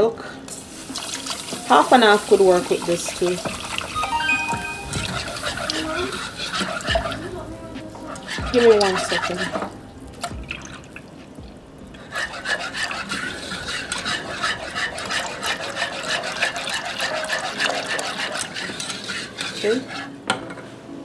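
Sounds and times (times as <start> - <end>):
milk pouring into saucepan: 0.5 - 4.0, 12.2 - 19.6
whisk scraping against pan: 0.8 - 4.0, 4.6 - 7.4, 8.0 - 9.8, 12.0 - 20.2.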